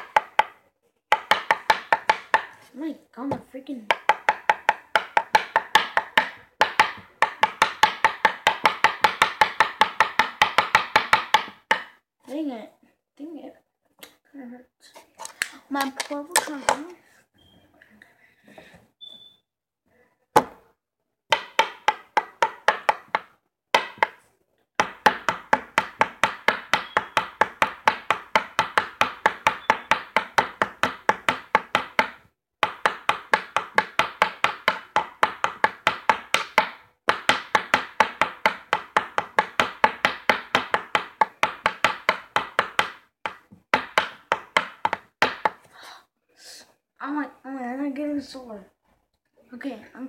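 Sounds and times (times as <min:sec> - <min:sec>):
pencil tapping on tabletop: 0:00.0 - 0:02.6, 0:03.3 - 0:12.0, 0:21.3 - 0:24.2, 0:24.8 - 0:45.7.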